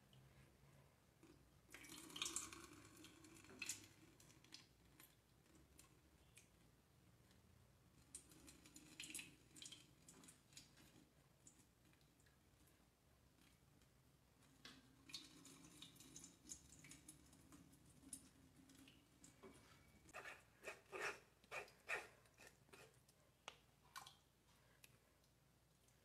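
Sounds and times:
liquid pouring through metal strainer: 14.9s - 19.4s.

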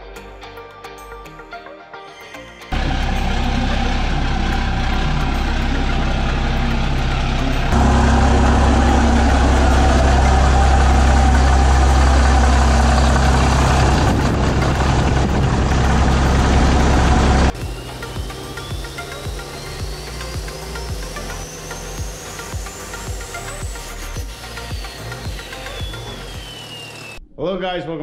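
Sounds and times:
diesel truck engine idling: 2.8s - 24.1s.

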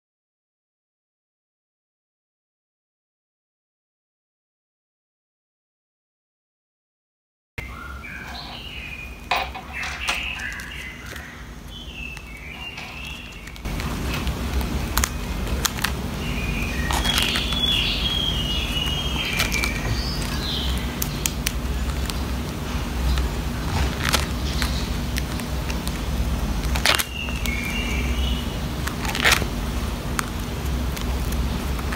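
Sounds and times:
steady low hum: 7.6s - 31.9s
plastic sleeves rustling: 8.0s - 31.9s.

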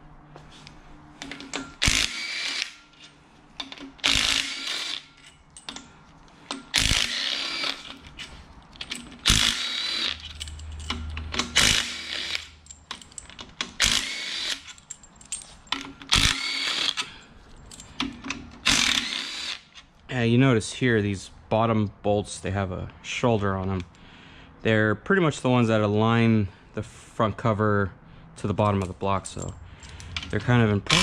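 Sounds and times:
power tool whining: 1.8s - 3.1s, 4.0s - 5.1s, 6.7s - 8.0s, 9.2s - 10.3s, 16.1s - 17.1s, 18.6s - 19.7s.

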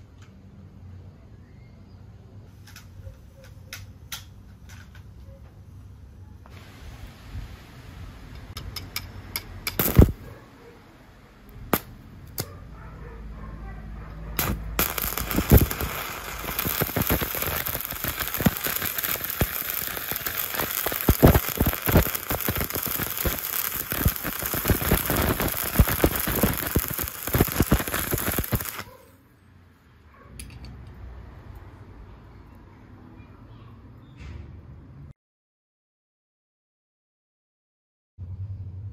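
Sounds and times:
welding arc striking cracks: 9.6s - 10.2s, 11.7s - 12.5s, 14.4s - 28.9s
welding arc crackling hiss: 9.7s - 10.2s, 14.4s - 28.9s.

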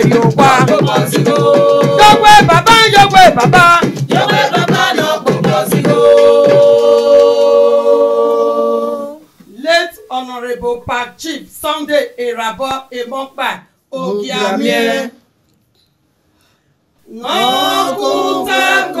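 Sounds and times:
clicking percussive beat: 0.0s - 7.4s.

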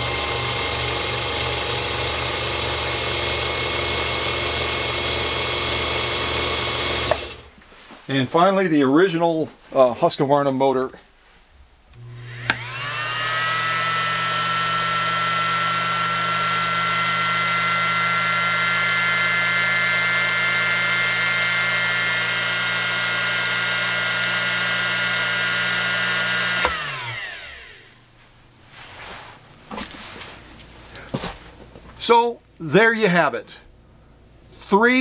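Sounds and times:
sewing machine running: 0.0s - 7.5s, 12.0s - 27.9s.

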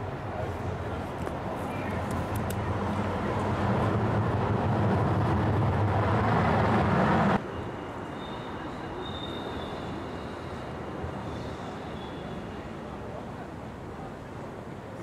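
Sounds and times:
low rumbling vehicle noise: 0.0s - 15.0s
outdoor noise: 0.0s - 15.0s
faint high squeal: 7.4s - 12.7s.

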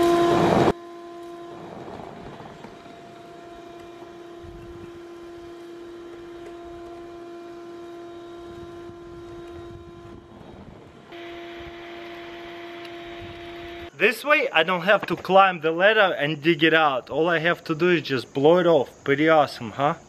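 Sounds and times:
air rushing through pipe: 0.0s - 0.8s
shop vacuum motor whine: 0.0s - 14.0s.

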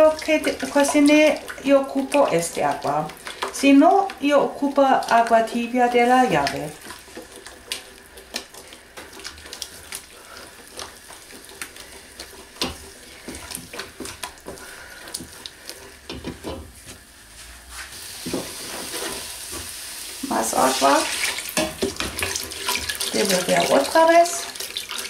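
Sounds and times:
wooden spoon scraping pot: 0.0s - 16.9s, 17.8s - 19.6s
faint sizzle: 0.0s - 24.9s.

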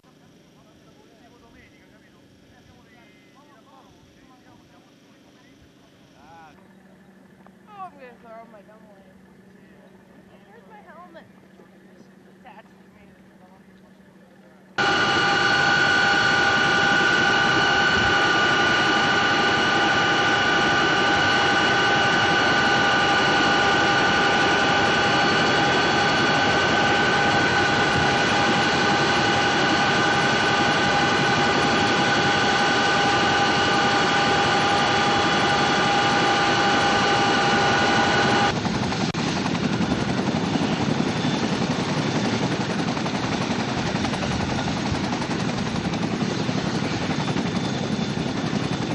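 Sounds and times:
helicopter rotors turning on ground: 0.0s - 48.9s
helicopter turbine whine: 0.0s - 48.9s
rotor and wind rushing: 14.8s - 48.9s.

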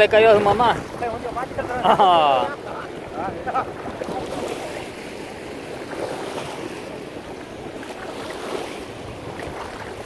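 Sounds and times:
sea surf sloshing: 0.0s - 10.0s
wind rumbling on microphone: 2.4s - 10.0s.

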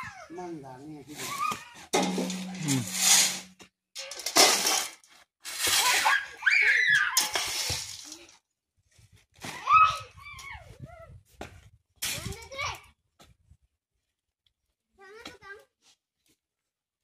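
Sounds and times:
shovel scraping sand and soil: 2.0s - 3.6s, 4.4s - 6.2s, 7.2s - 8.2s
child shrieking: 5.9s - 7.2s.

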